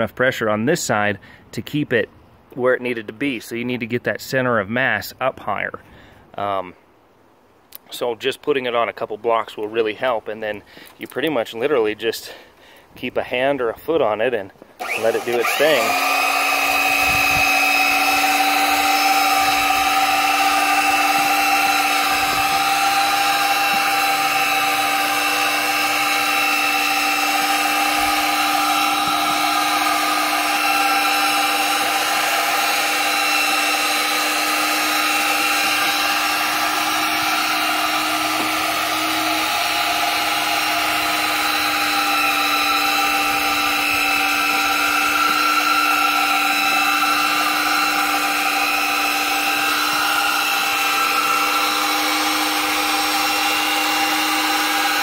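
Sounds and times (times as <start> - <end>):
drill motor whining: 14.8 - 55.0.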